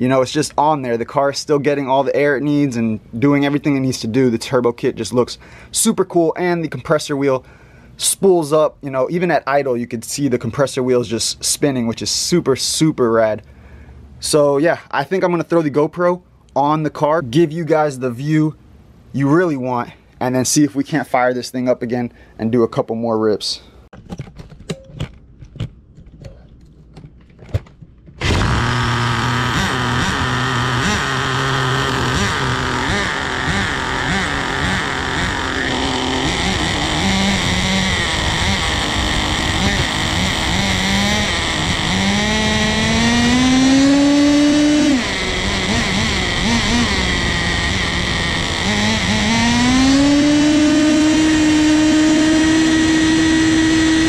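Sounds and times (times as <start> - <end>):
small glow engine buzzing and revving: 28.2 - 54.0.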